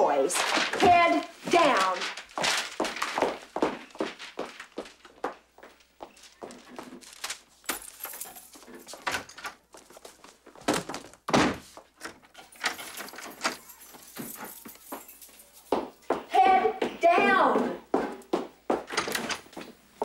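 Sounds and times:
footsteps on hard floor: 0.4 - 12.0, 13.9 - 19.8
door knocks and thunks: 10.6 - 11.7.

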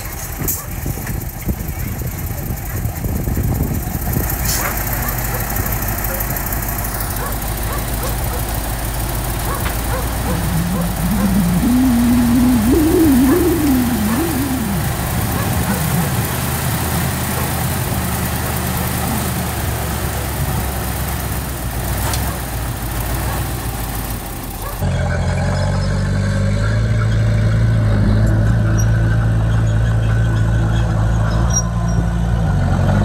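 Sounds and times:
diesel engine running: 0.0 - 33.0
wavering whine: 10.2 - 17.2.

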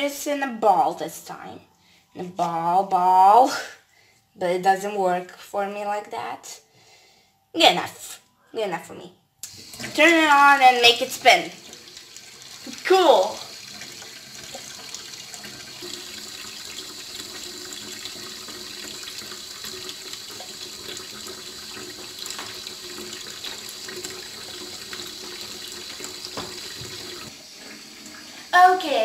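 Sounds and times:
tap running thin stream: 9.4 - 10.0, 11.4 - 28.4
water splashing in bowl and sink: 9.4 - 29.0.

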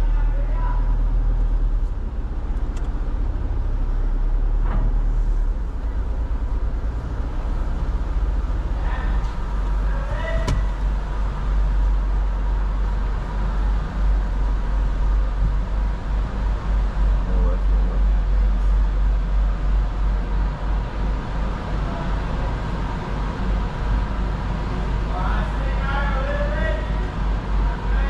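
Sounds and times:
car rumbling at low speed: 0.0 - 28.0
click: 2.6 - 2.9.

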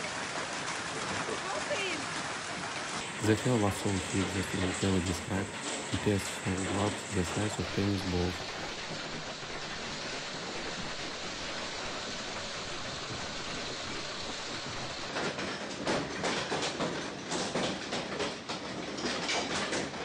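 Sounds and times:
hailstones hissing: 0.6 - 15.5.

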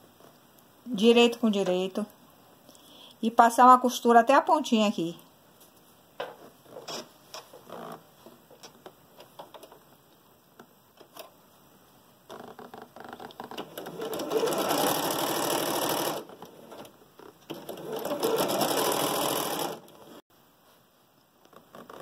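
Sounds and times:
sewing machine stitching: 13.1 - 20.2.

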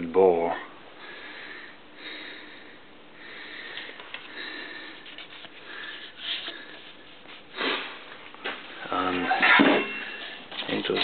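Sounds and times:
low workshop hum: 0.0 - 11.0
person sniffing: 3.4 - 8.0.

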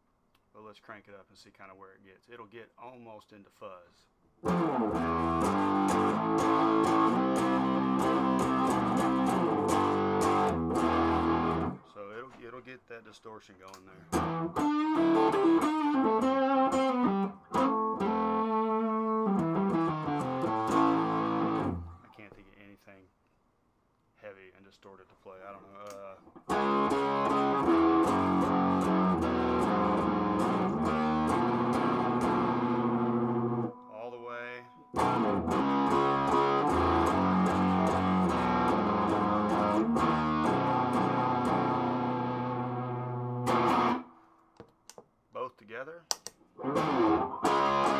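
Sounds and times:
distorted electric guitar chords: 4.4 - 11.8, 14.1 - 22.0, 26.4 - 33.8, 34.9 - 44.2, 46.6 - 47.9.

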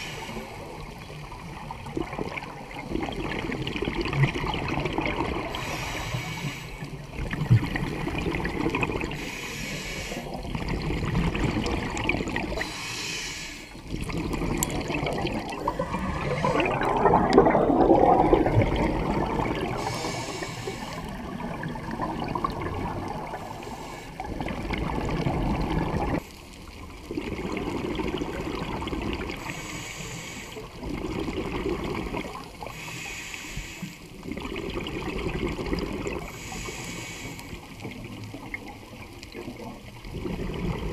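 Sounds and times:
exhaled bubbles gurgling: 0.0 - 40.9
regulator hissing inhalation: 5.5 - 6.9, 9.1 - 10.4, 12.5 - 13.8, 19.7 - 21.2, 29.4 - 30.7, 32.7 - 34.1, 36.3 - 37.7.

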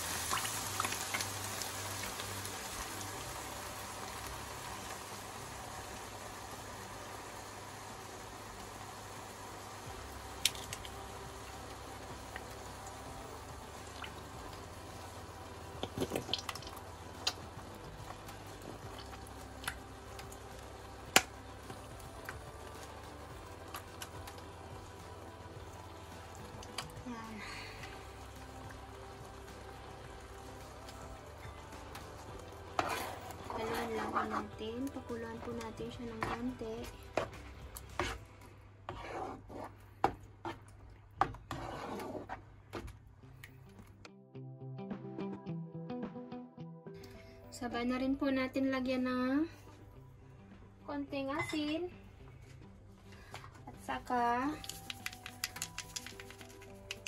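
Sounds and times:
cream dripping and popping in pan: 0.0 - 6.3, 9.8 - 38.2, 53.2 - 57.0
background music: 0.0 - 39.0, 41.4 - 57.0
spatula scraping a frying pan: 32.6 - 34.6, 36.0 - 38.2, 38.9 - 40.6, 41.4 - 42.4
carton clicks: 54.6 - 57.0.

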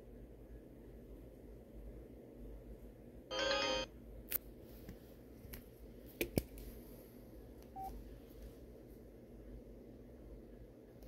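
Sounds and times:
phone electronic jingle: 3.3 - 3.9.

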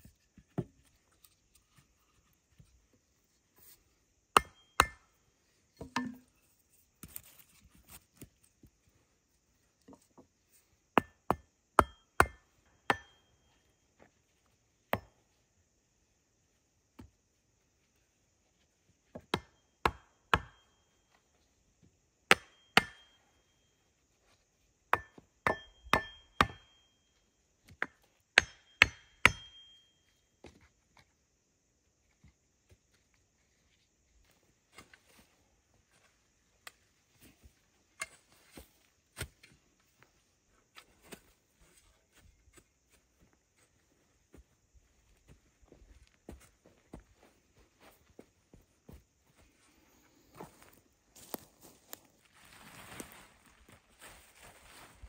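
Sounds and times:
axe chopping wood: 4.4 - 5.0, 11.0 - 13.1, 19.2 - 20.6, 22.3 - 23.1, 24.9 - 26.6, 27.7 - 29.6.

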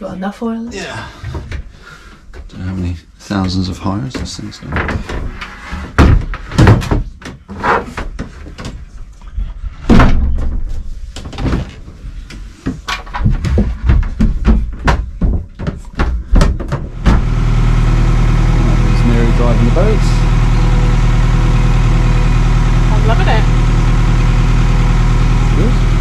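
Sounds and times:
wooden floorboards knocking and thumping: 3.4 - 8.9, 9.8 - 17.3.

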